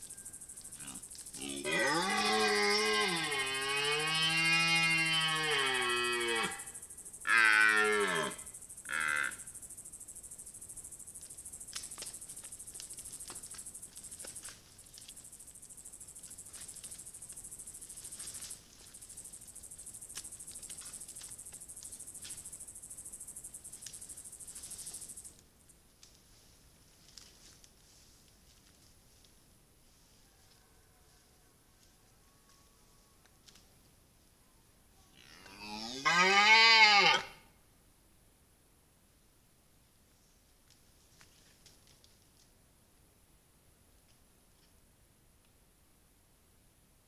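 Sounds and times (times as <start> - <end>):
deer stag roaring: 1.4 - 6.6, 35.4 - 37.4.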